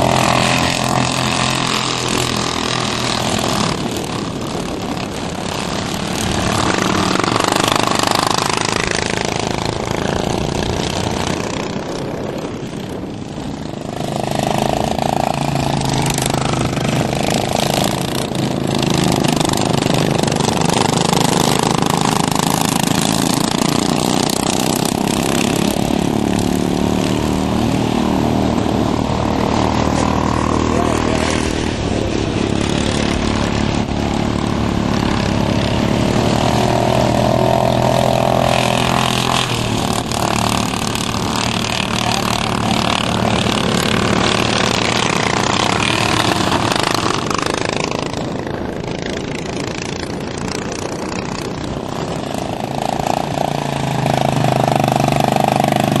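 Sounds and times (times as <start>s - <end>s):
lawn mower engines racing: 0.0s - 56.0s.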